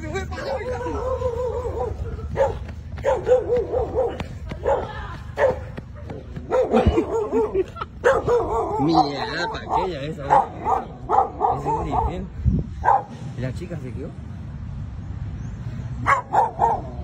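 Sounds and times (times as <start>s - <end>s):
dog barking: 0.4s - 12.2s, 12.8s - 13.1s, 16.0s - 17.0s.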